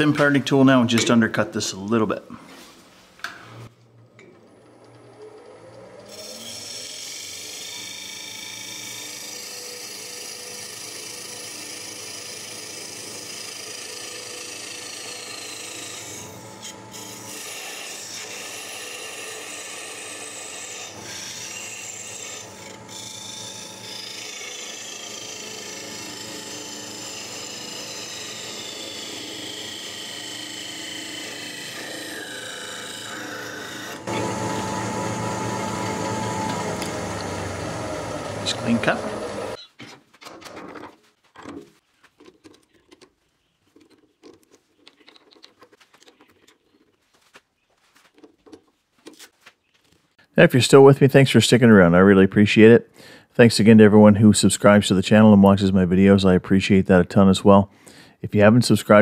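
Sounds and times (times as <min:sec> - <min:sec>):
lathe motor hum: 0:04.4 - 0:39.6
lathe tool scraping wood: 0:06.0 - 0:39.6.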